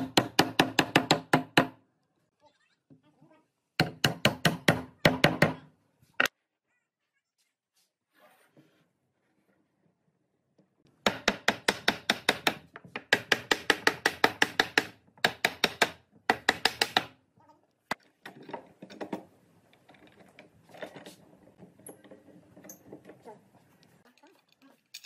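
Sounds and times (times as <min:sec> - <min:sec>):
clatter of wood and clamp: 0:17.9 - 0:23.3.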